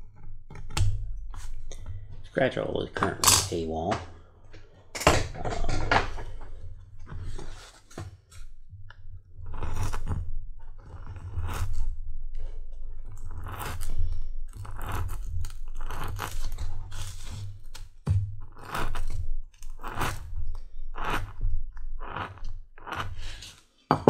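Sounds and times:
knife cutting leather: 13.1 - 13.9, 14.5 - 20.3, 20.9 - 23.6.

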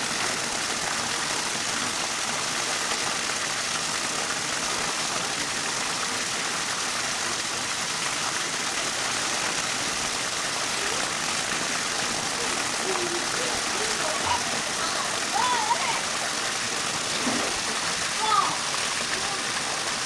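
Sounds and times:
rush of falling water: 0.0 - 20.0.

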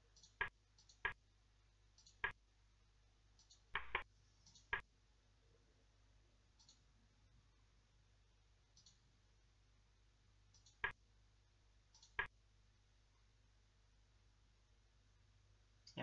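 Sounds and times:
computer mouse clicking: 0.1 - 1.2, 2.0 - 2.4, 3.4 - 4.9, 6.6 - 6.8, 8.7 - 9.0, 10.5 - 11.0, 11.9 - 12.3.

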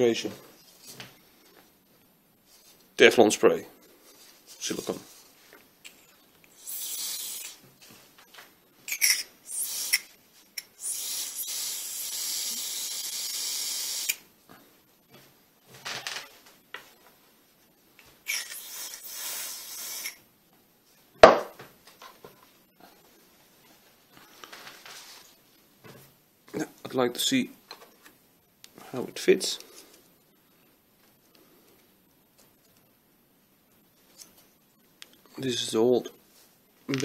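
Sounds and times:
aerosol spray hissing: 6.5 - 7.6, 9.5 - 14.2, 18.3 - 20.2
sharp knock: 21.2 - 21.6.

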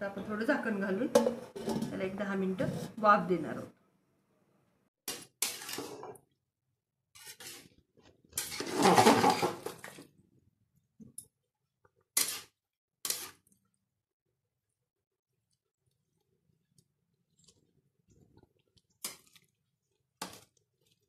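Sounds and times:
spoon stirring rice in metal pot: 5.1 - 6.3, 7.1 - 10.0, 11.1 - 13.7, 15.3 - 21.0.

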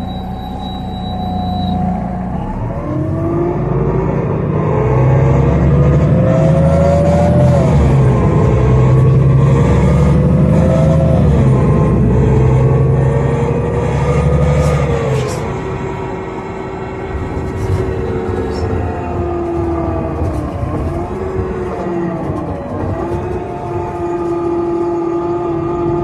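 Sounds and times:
bus engine accelerating: 0.0 - 26.0.

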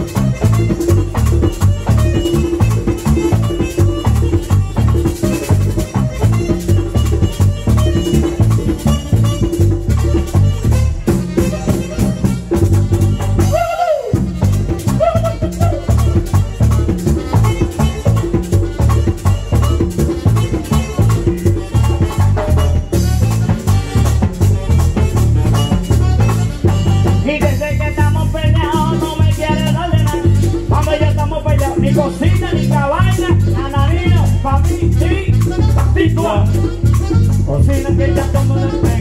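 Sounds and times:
accordion: 0.0 - 39.0
drum and bass beat: 0.0 - 39.0
scraped guira rhythm: 0.0 - 39.0.

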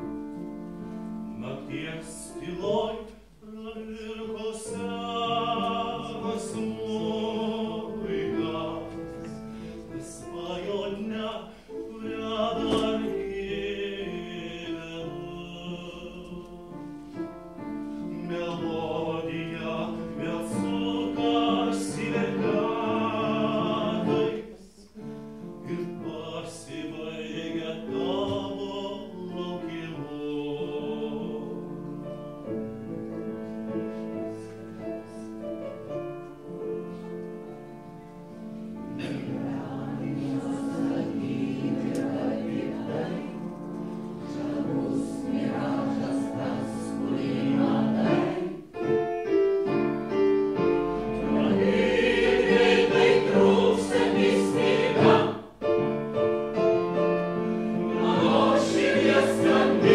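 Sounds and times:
piano accompaniment: 0.0 - 59.9
mixed choir singing: 1.4 - 16.7, 18.1 - 25.0, 25.7 - 31.8, 38.9 - 48.9, 50.9 - 55.6, 57.4 - 59.9.

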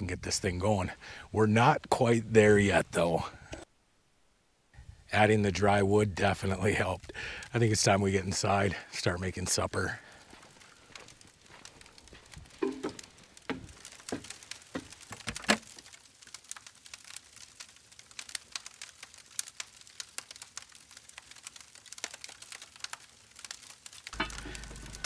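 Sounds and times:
campfire crackling and popping: 4.8 - 25.0.

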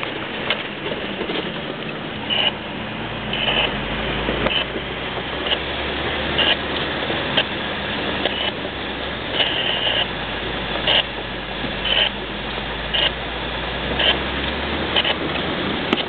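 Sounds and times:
low engine drone: 0.0 - 16.0
road noise on gravel: 0.0 - 16.0
high-pitched body squeaks: 2.3 - 2.6, 3.3 - 3.8, 4.5 - 4.7, 11.8 - 12.2.

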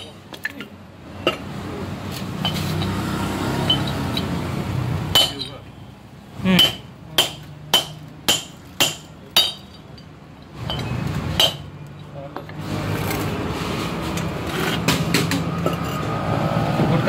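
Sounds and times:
hammer striking metal punch: 5.1 - 5.6, 6.5 - 9.8, 10.7 - 11.7.

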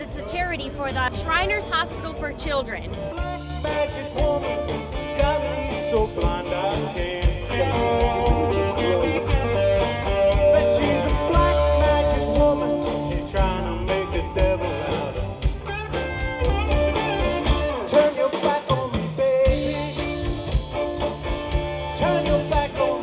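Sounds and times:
drums: 0.0 - 23.0
electric guitar: 0.0 - 23.0
person singing: 3.0 - 15.5, 16.9 - 20.7, 21.8 - 23.0.

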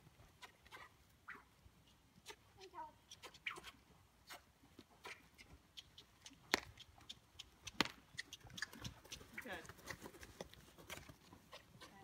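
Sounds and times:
hooves on dirt and tack clicks: 0.0 - 12.0.

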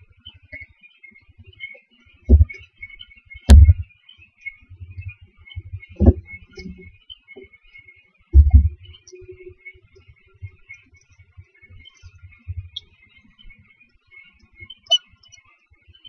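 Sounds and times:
faint steady crackle: 0.0 - 16.0
knocks in wooden nest box: 3.5 - 3.8.

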